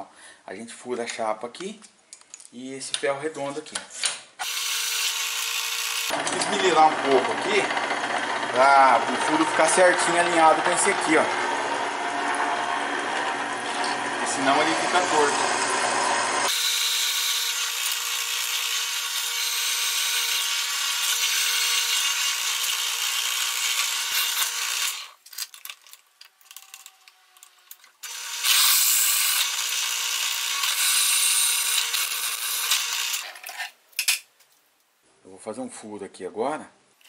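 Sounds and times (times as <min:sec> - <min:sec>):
drill bit cutting steel: 0:04.4 - 0:25.2, 0:28.0 - 0:33.3
drill motor humming: 0:04.4 - 0:25.2, 0:28.0 - 0:33.3.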